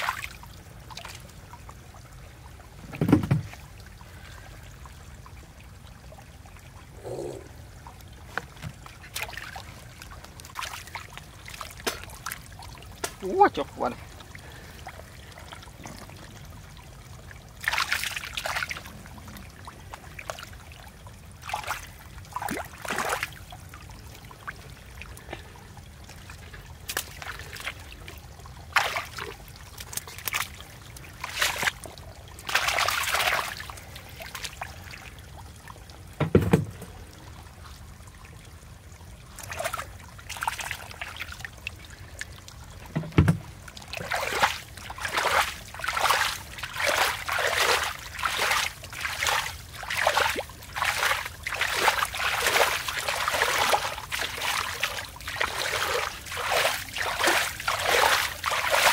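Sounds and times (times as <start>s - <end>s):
hands splashing in muddy water: 28.7s - 30.6s, 31.2s - 31.8s, 32.4s - 34.6s, 43.9s - 58.9s
dull thump: 36.2s - 36.9s, 43.0s - 43.4s.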